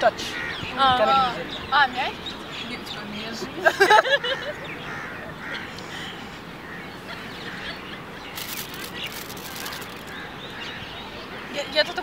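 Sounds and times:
birds chirping: 0.0 - 12.0
outdoor background noise: 0.0 - 12.0
wrapper crinkling: 8.4 - 10.2.

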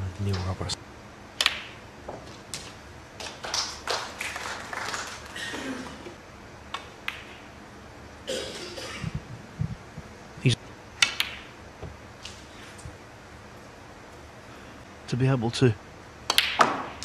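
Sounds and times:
cue tip striking cue ball: 1.4 - 2.2, 11.0 - 12.0, 16.3 - 17.0
snooker balls knocking together: 1.4 - 3.4, 6.7 - 7.5, 11.0 - 12.0, 16.3 - 17.0.

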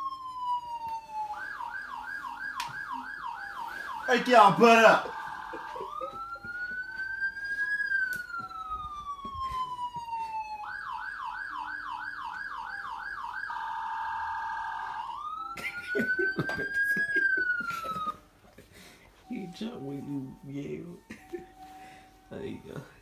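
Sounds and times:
police siren wailing and yelping: 0.0 - 23.0.

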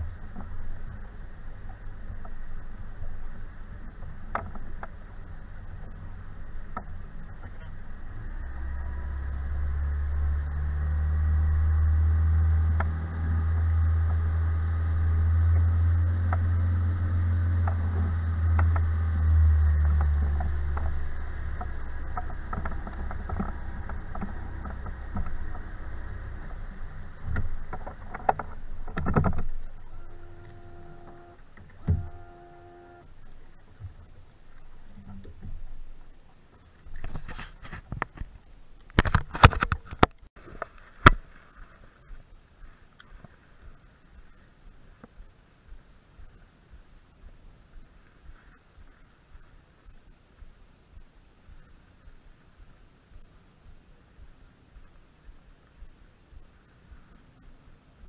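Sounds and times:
boat motor hum: 0.0 - 39.2.

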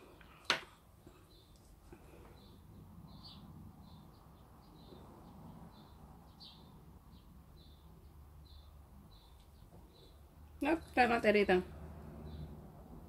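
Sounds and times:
small bird chirping: 2.3 - 10.3.

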